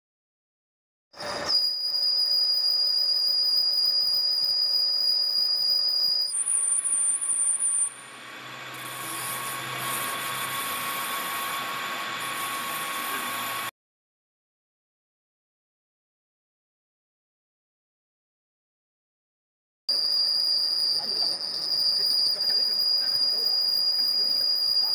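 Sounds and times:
lathe tool squealing: 1.2 - 13.7, 19.9 - 24.9
cutting hiss: 6.5 - 13.7, 19.9 - 24.9
low hum of running lathe: 7.9 - 13.7.

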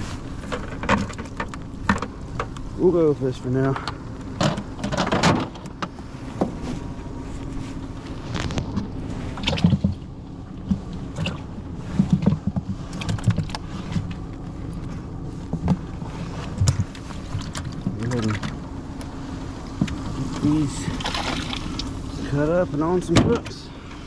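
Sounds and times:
steady low hum: 0.0 - 24.0
fishing gear knocking in a boat: 12.0 - 14.1.

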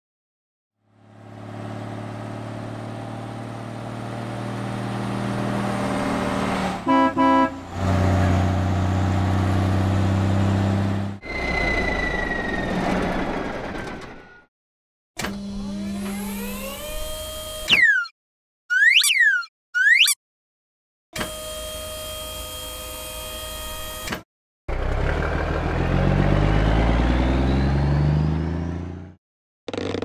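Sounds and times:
cartoon truck engine hum: 0.8 - 14.5, 15.2 - 20.2, 21.2 - 30.0
short horn toots: 6.8 - 7.7.

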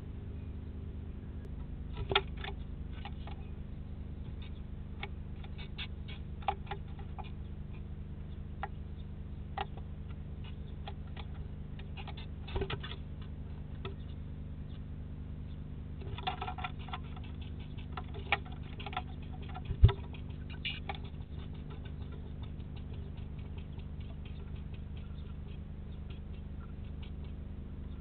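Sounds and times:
low electrical hum: 0.0 - 28.0
bird tapping and scratching: 1.9 - 3.5, 4.2 - 7.8, 9.5 - 14.1, 16.0 - 28.0.

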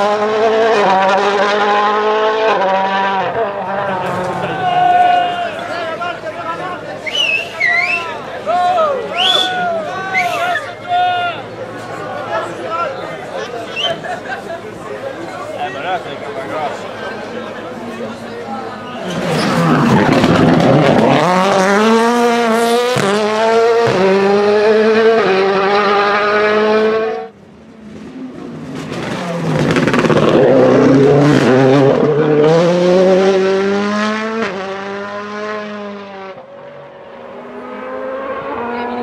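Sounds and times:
distant car accelerating: 0.0 - 6.1, 19.0 - 39.0
rally car engines accelerating: 0.0 - 39.0.

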